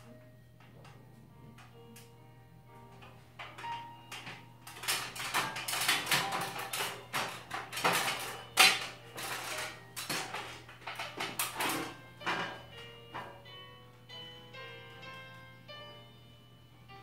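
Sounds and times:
clanks on metal ladder rungs: 0:03.0 - 0:13.4.

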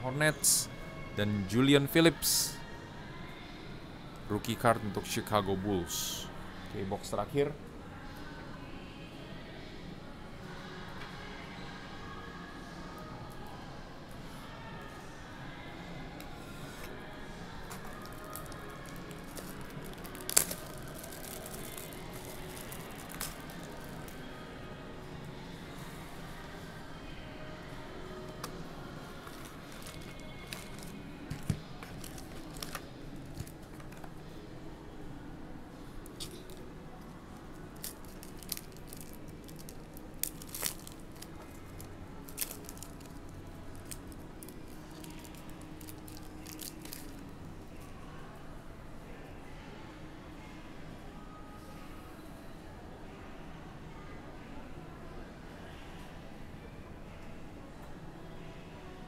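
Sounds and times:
plastic wrap crinkling: 0:17.7 - 0:24.2, 0:29.2 - 0:34.0, 0:37.7 - 0:47.2.

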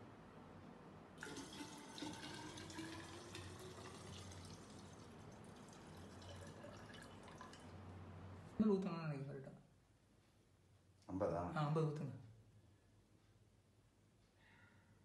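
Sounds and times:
liquid pouring into glass: 0:01.2 - 0:07.8.

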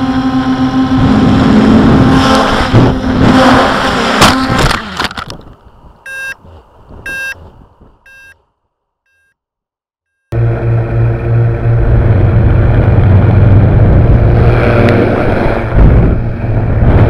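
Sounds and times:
short electronic beeps: 0:06.1 - 0:06.4, 0:07.0 - 0:07.4, 0:08.0 - 0:08.4, 0:09.1 - 0:09.4
wind rush: 0:10.6 - 0:17.0.

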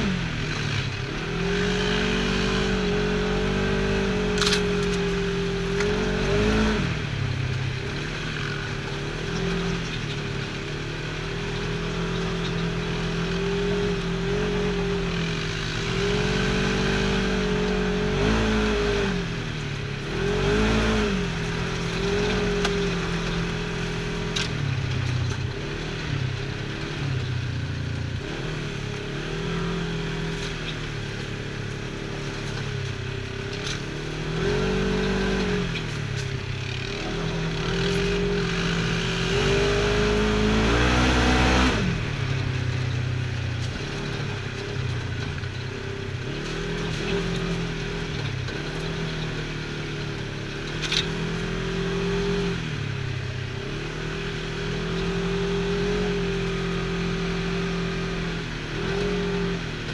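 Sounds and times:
utility vehicle engine revving: 0:00.0 - 0:59.9.

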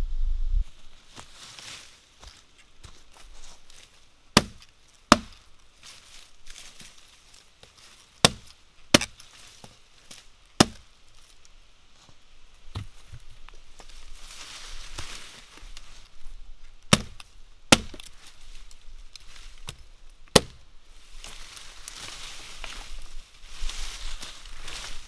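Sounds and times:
hatchet chopping wood: 0:04.4 - 0:05.4, 0:08.2 - 0:09.2, 0:10.6 - 0:10.8, 0:16.9 - 0:18.1, 0:19.6 - 0:20.6.

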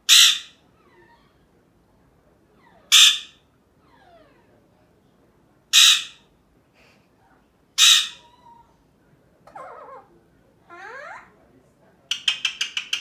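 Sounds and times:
parakeet squawking: 0:00.1 - 0:00.6, 0:02.8 - 0:03.4, 0:05.8 - 0:06.2, 0:07.8 - 0:08.4, 0:10.7 - 0:11.3.

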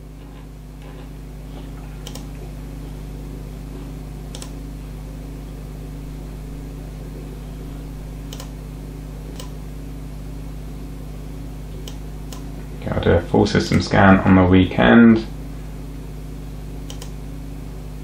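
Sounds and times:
desktop computer humming: 0:00.0 - 0:18.0
computer mouse clicking: 0:02.0 - 0:02.3, 0:04.3 - 0:04.6, 0:08.3 - 0:08.5, 0:09.3 - 0:09.6, 0:11.8 - 0:12.5, 0:16.8 - 0:17.2.

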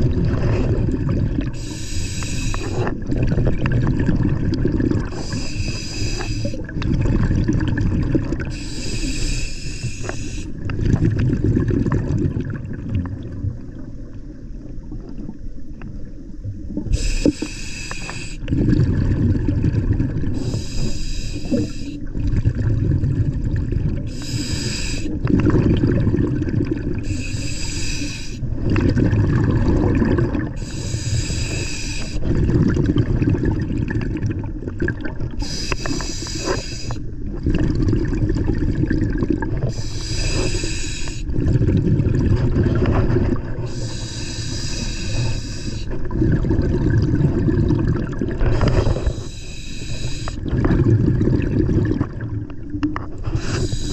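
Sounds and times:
exhaled air bubbling: 0:00.0 - 0:53.9
regulator hissing inhale: 0:01.6 - 0:03.0, 0:05.1 - 0:06.7, 0:08.5 - 0:10.6, 0:16.9 - 0:18.5, 0:20.3 - 0:22.1, 0:24.1 - 0:25.3, 0:27.0 - 0:28.5, 0:30.6 - 0:32.3, 0:35.4 - 0:37.1, 0:39.7 - 0:41.3, 0:43.6 - 0:46.0, 0:48.5 - 0:50.4, 0:53.2 - 0:53.9.

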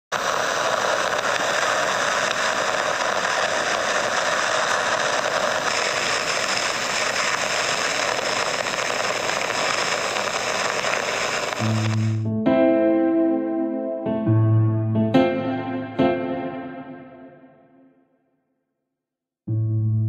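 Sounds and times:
continuous mechanical hiss: 0:00.2 - 0:12.2.

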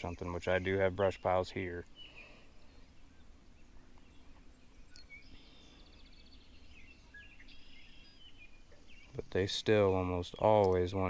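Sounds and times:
bird trill: 0:00.0 - 0:09.3
faint birdsong: 0:00.0 - 0:11.0.

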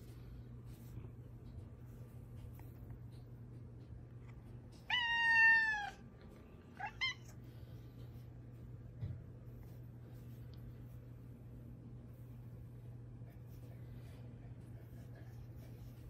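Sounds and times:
cat meowing: 0:04.8 - 0:06.0, 0:06.7 - 0:07.4.

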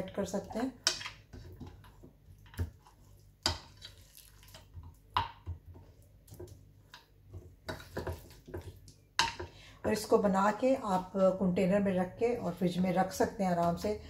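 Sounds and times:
wet sticky squelching of batter: 0:01.3 - 0:09.1.

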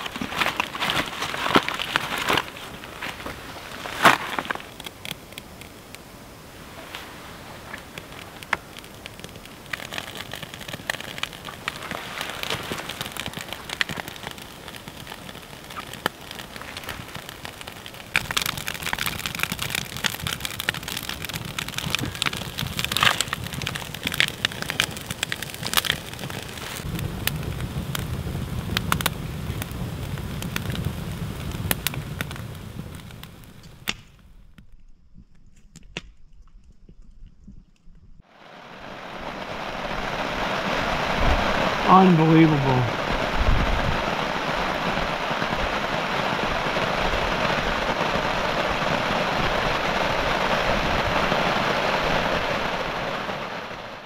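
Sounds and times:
heavy rain pattering: 0:00.0 - 0:33.9, 0:38.3 - 0:54.0
low rumble: 0:38.0 - 0:49.4.

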